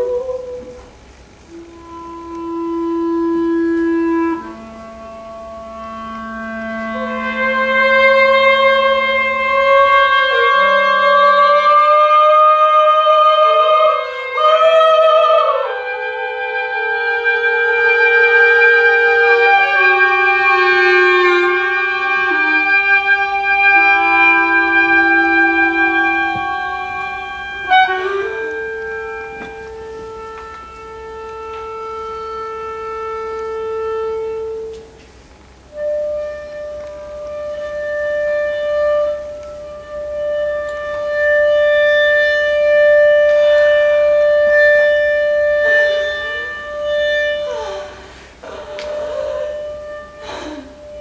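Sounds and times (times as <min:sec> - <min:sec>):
chamber ensemble playing: 0:15.3 - 0:51.0.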